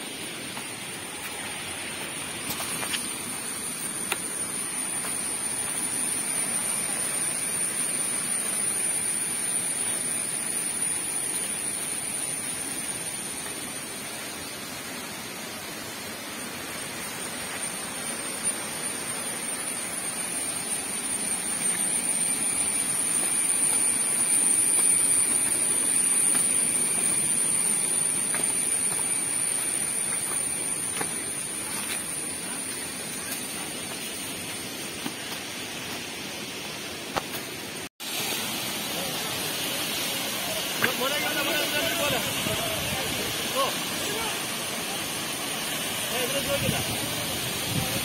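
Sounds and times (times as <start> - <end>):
high-pitched whine: 0.0 - 48.0
waterfall roaring: 21.4 - 48.0.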